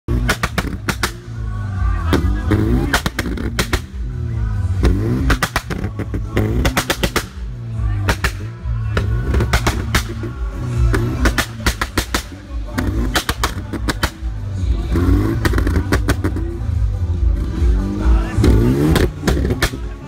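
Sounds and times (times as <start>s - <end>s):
exhaust popping and banging: 0.1s - 1.3s, 2.1s - 4.0s, 4.8s - 14.3s, 15.3s - 16.6s, 18.3s - 20.0s
car engine droning: 0.1s - 20.0s
crowd voices: 0.1s - 20.0s
music: 0.1s - 20.0s.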